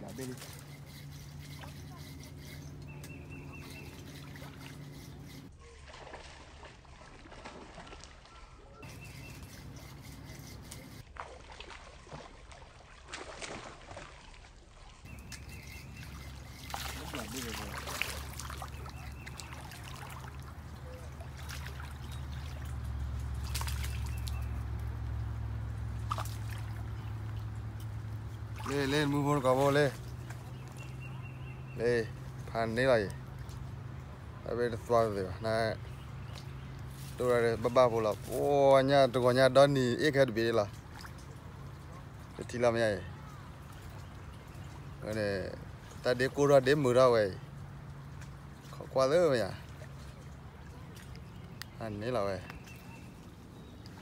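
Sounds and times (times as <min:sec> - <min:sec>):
steady low hum: 0:00.0 - 0:05.5, 0:15.1 - 0:34.6
water lapping at shoreline: 0:00.0 - 0:54.0
fish thrashing and splashing: 0:03.5 - 0:31.0.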